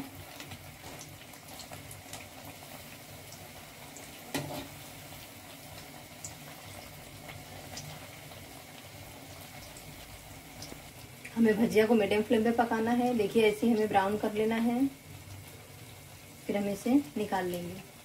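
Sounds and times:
fritters sizzling in hot oil: 0:00.0 - 0:18.0.

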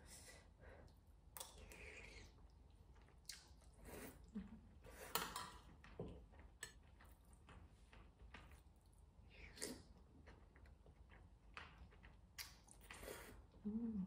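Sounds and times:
slurping and chewing noodles: 0:08.5 - 0:13.6.

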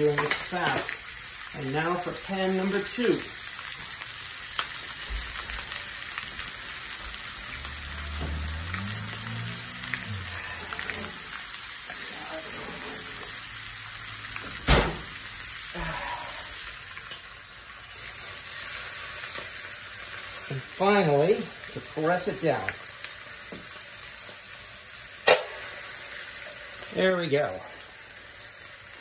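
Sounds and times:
chicken sizzling in a skillet: 0:00.0 - 0:29.0.

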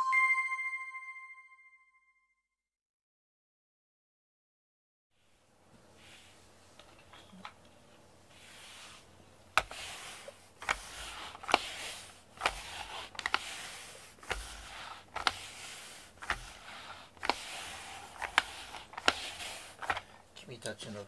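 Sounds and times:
brush stroking cat fur: 0:05.8 - 0:06.8, 0:08.2 - 0:20.2.

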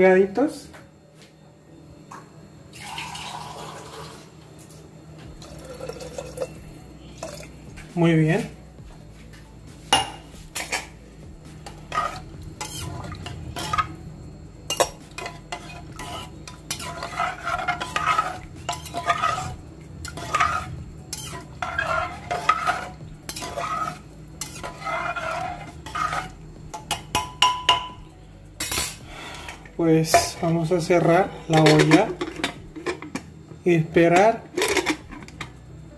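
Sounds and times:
spoon stirring and scraping pot: 0:09.8 - 0:14.0, 0:14.7 - 0:28.0, 0:28.7 - 0:33.3, 0:34.1 - 0:35.6.

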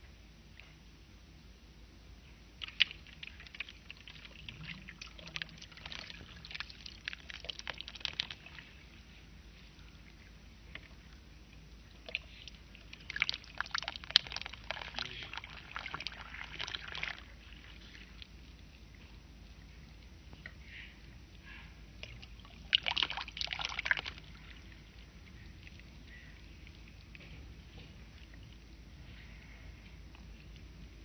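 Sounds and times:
crackles of soaking soil: 0:02.2 - 0:31.0
water poured onto soil: 0:02.6 - 0:08.9, 0:12.0 - 0:18.3, 0:22.1 - 0:24.6.

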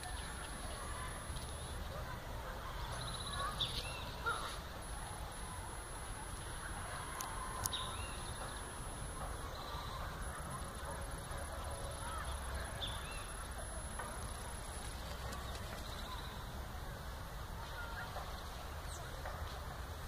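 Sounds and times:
faint bird calls: 0:00.0 - 0:05.6
low rumble and hiss: 0:00.0 - 0:20.0.

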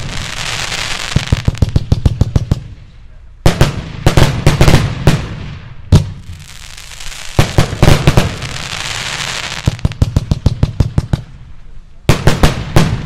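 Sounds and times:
crackling hiss of falling sparks: 0:00.0 - 0:01.8, 0:06.2 - 0:10.2
fireworks bangs: 0:00.0 - 0:11.4, 0:12.1 - 0:13.0.

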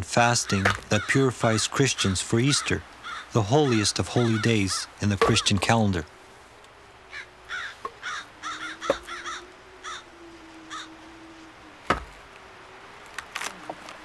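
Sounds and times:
crows cawing: 0:00.3 - 0:05.6, 0:07.0 - 0:12.4
faint low hum: 0:03.4 - 0:14.0
sharp knocks: 0:11.9 - 0:12.2.

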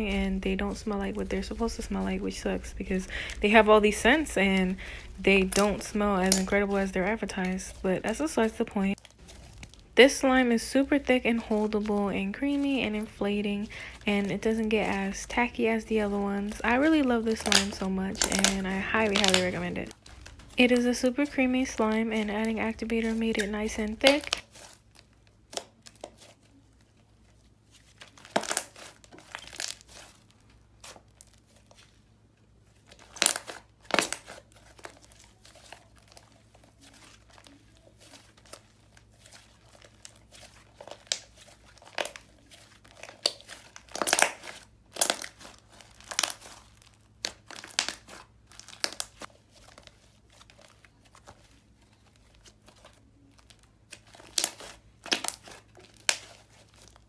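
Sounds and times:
hands squishing sticky slime: 0:00.0 - 0:32.0, 0:32.6 - 0:57.0
slime crackles and pops: 0:17.3 - 0:20.5, 0:28.2 - 0:30.0, 0:32.9 - 0:36.0, 0:42.9 - 0:49.3, 0:53.4 - 0:57.0.

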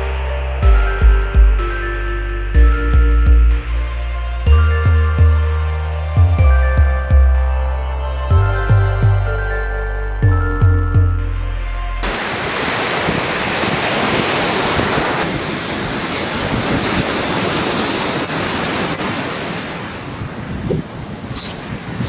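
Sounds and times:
surf breaking on beach: 0:12.0 - 0:22.0
wind buffeting microphone: 0:12.0 - 0:22.0.

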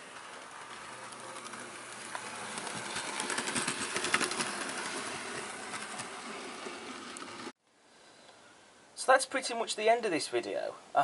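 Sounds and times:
wheels clicking on rails: 0:00.0 - 0:07.5.

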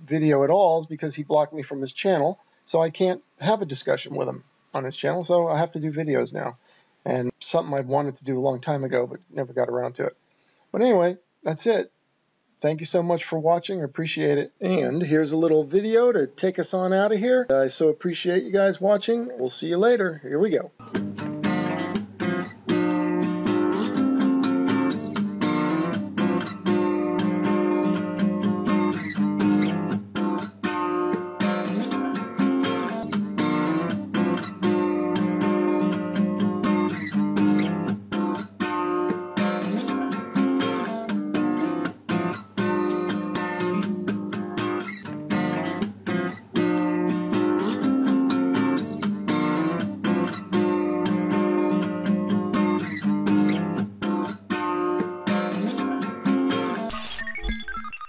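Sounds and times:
strummed acoustic guitar music: 0:20.8 - 0:57.1.

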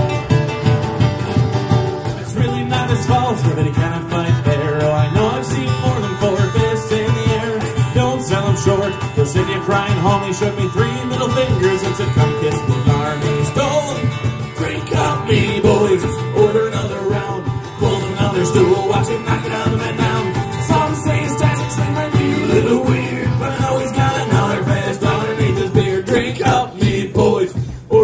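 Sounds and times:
electric guitars: 0:00.0 - 0:26.6
cajon beat: 0:00.0 - 0:28.0
strummed acoustic guitar: 0:00.0 - 0:28.0
wavering lead melody: 0:17.8 - 0:25.2.

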